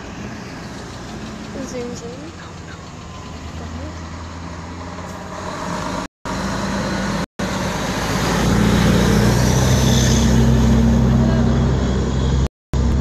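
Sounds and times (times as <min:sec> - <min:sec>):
fire truck engine driving past: 0:00.0 - 0:13.0.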